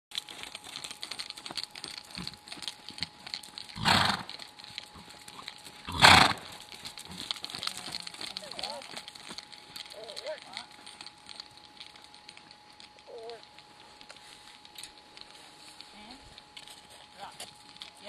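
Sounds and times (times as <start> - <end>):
horse snorting: 3.8 - 4.4, 5.0 - 7.4.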